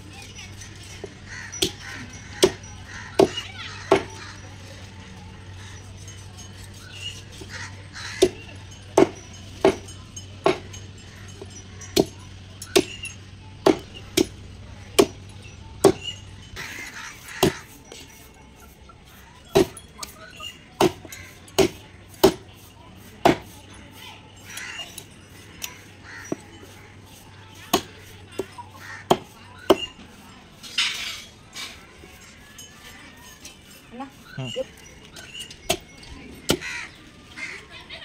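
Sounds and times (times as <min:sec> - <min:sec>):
knife chopping fish on wood: 0:17.4 - 0:17.7, 0:20.8 - 0:22.4, 0:23.2 - 0:23.6, 0:27.7 - 0:29.9.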